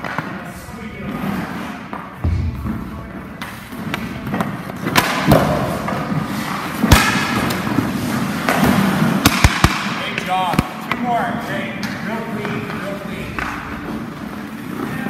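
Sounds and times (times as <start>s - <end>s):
hockey stick cracking on puck: 3.4s - 11.0s
skate blades scraping ice: 5.7s - 9.6s.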